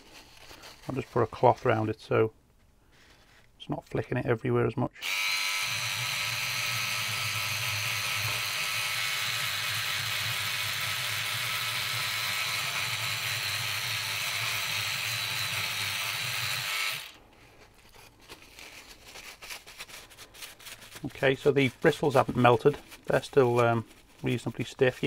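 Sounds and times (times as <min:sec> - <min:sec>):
electric cleaning brush buzzing: 0:05.0 - 0:17.2.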